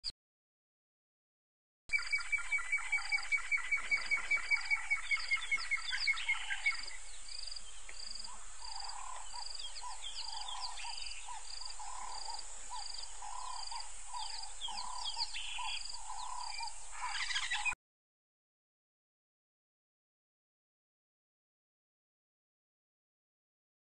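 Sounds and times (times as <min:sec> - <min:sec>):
fast pulsed bird trill: 0:01.9 - 0:07.0, 0:08.6 - 0:17.8
birds chirping: 0:01.9 - 0:17.8
lower bird call: 0:01.9 - 0:17.8.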